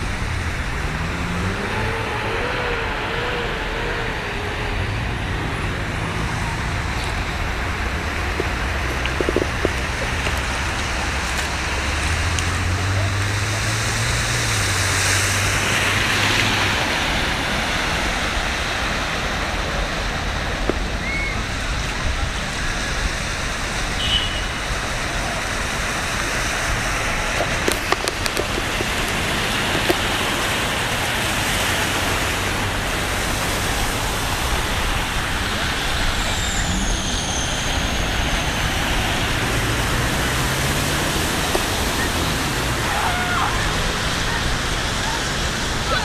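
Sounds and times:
car engines running: 0.0 - 46.0
low engine hum: 0.0 - 46.0
water splashing around car wheels: 0.0 - 46.0.

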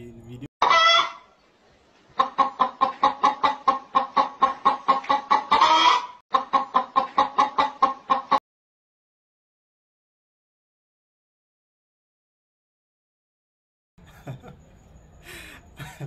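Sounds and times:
hen clucking: 0.6 - 1.4, 2.1 - 8.4.

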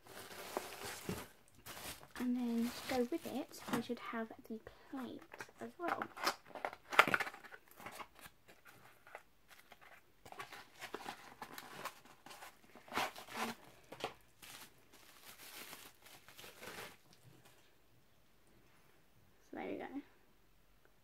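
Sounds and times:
packing scraping and crinkling: 0.0 - 4.0, 5.4 - 17.2.

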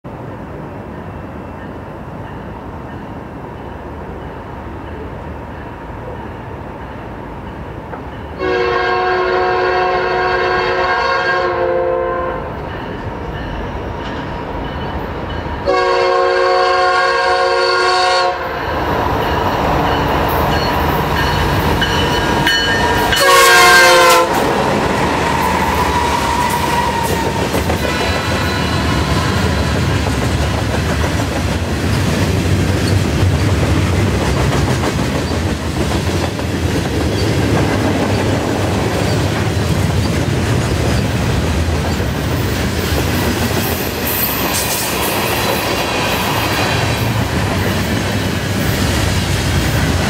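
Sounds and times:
train wheels on rails: 0.1 - 50.0
train air horn blasts: 8.4 - 12.6, 15.6 - 18.6, 22.4 - 24.6, 25.2 - 29.9
freight cars clickety-clack: 24.2 - 50.0.

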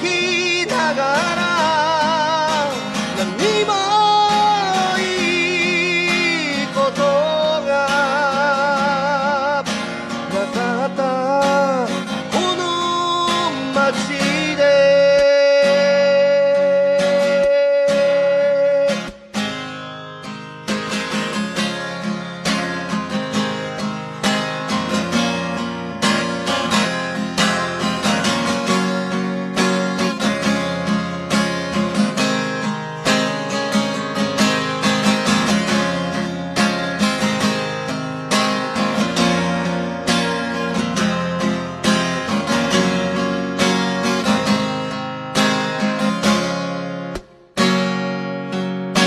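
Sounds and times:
acoustic guitar strumming: 0.0 - 49.0.

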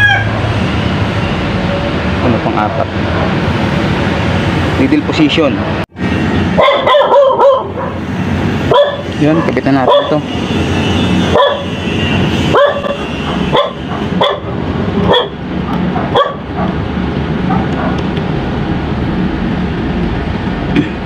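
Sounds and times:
dog barking: 6.6 - 8.0, 8.7 - 10.2, 11.3 - 11.7, 12.5 - 16.8, 17.5 - 18.0.

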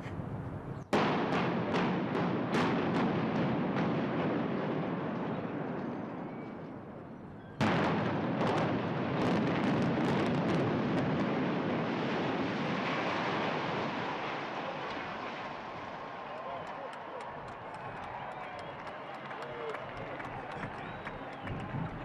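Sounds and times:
building collapse rumble: 7.6 - 22.0.

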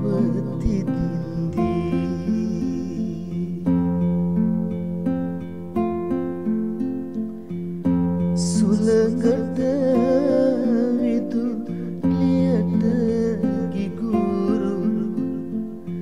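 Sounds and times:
person singing ornamented melody: 0.0 - 4.6, 8.2 - 16.0
strummed acoustic guitar: 0.0 - 16.0.

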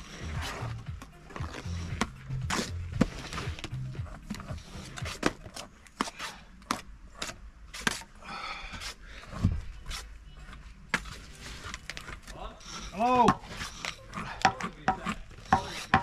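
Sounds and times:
trowel scraping and tapping mortar: 13.2 - 16.0.

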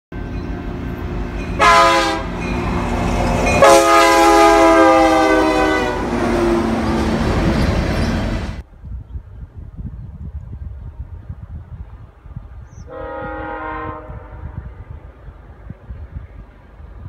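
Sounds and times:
train rumbling on rails: 0.2 - 17.0
locomotive air horn blasts: 1.6 - 2.5, 3.5 - 6.9, 12.9 - 14.9.

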